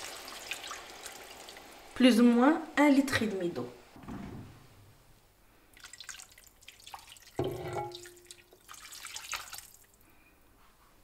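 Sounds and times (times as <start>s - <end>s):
water pouring and splashing: 0.0s - 2.0s, 5.7s - 10.0s.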